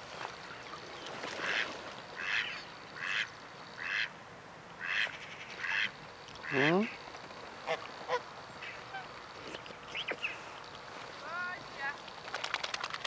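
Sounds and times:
duck quacking: 0:01.4 - 0:04.1, 0:04.8 - 0:06.9, 0:07.6 - 0:09.1.

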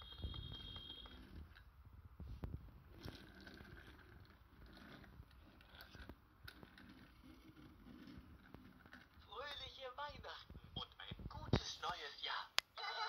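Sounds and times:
plastic toys clicking and scraping: 0:02.9 - 0:09.6.

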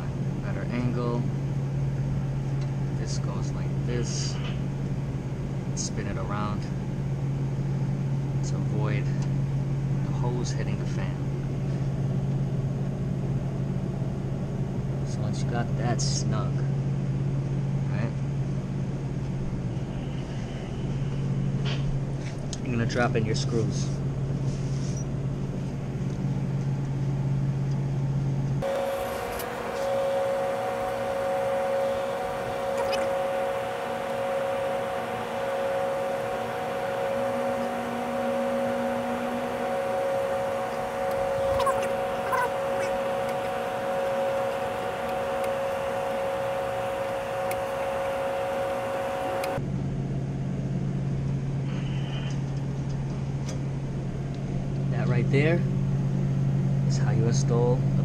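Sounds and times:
machinery humming and whining: 0:00.0 - 0:12.1, 0:28.5 - 0:49.7.

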